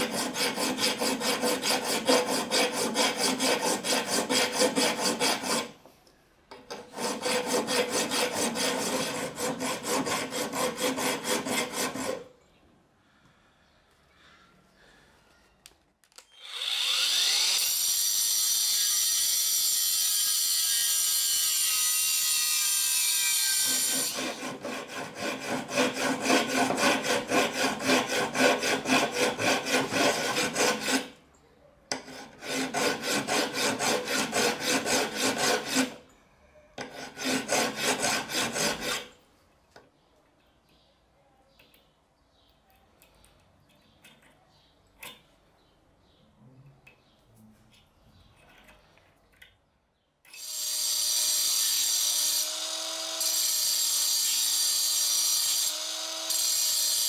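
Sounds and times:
hand file rasping on steel: 0.0 - 5.8, 6.7 - 12.3, 22.3 - 31.2, 31.9 - 36.0, 36.8 - 39.2, 55.2 - 57.0.

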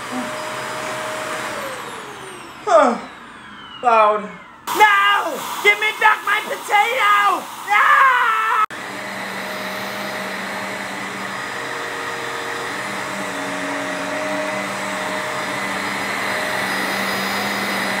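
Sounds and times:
vacuum cleaner running: 0.0 - 18.0
man shouting: 3.9 - 8.7.

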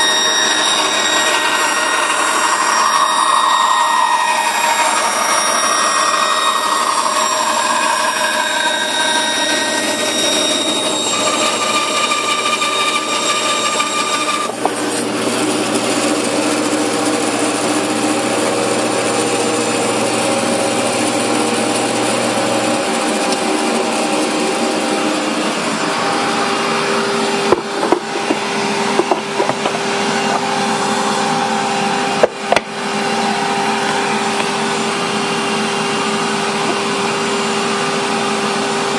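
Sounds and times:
band saw cutting wood: 0.0 - 38.0
sharp knocks: 27.5 - 30.5.

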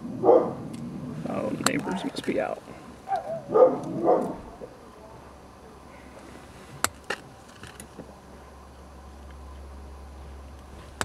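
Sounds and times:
dog barking: 0.2 - 0.6, 1.8 - 2.1, 3.1 - 4.5.

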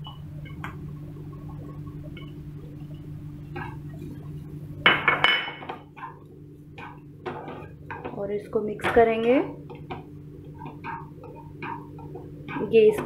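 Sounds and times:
low hum: 0.0 - 13.0
spatula scraping a frying pan: 6.0 - 8.1.

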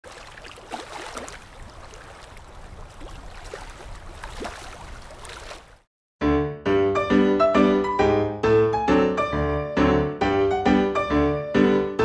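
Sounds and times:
sea water lapping: 0.0 - 5.9
ragtime piano tune: 6.2 - 12.0.

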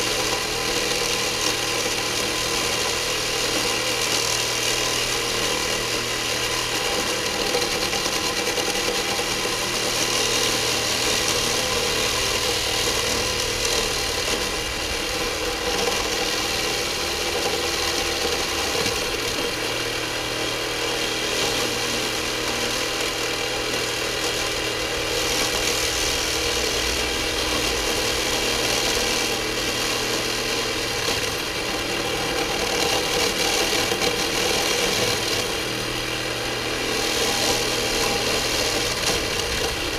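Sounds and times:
reciprocating saw cutting wire mesh: 0.0 - 39.9.

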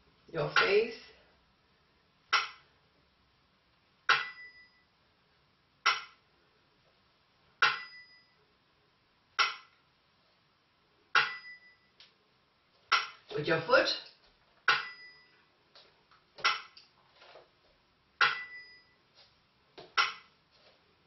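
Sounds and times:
bamboo clapper strikes: 2.4 - 2.6, 4.1 - 4.5, 5.9 - 6.2, 7.6 - 8.0, 9.4 - 9.7, 12.9 - 13.2, 14.7 - 15.0, 16.4 - 16.8, 18.2 - 18.6.

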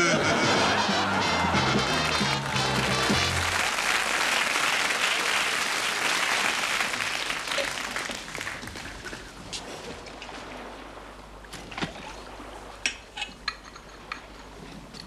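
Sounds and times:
audience applause: 0.0 - 9.1.

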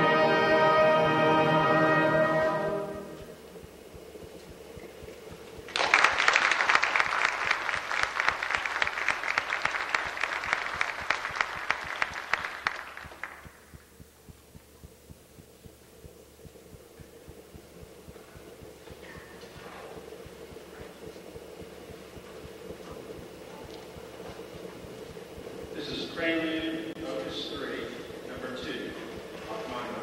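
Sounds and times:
faint steady hum: 0.0 - 30.0
audience applauding: 5.6 - 13.8.

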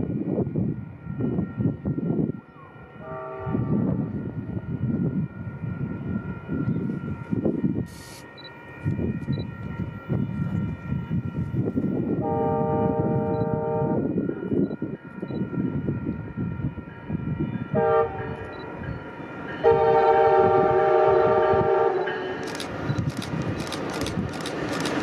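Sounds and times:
low train rumble: 0.0 - 25.0
train air horn blasts: 3.0 - 4.2, 12.0 - 14.2, 17.6 - 18.6, 19.6 - 22.4
sharp clicks of train: 6.6 - 10.7, 13.1 - 13.6, 14.5 - 15.6, 18.3 - 18.8, 21.9 - 25.0.

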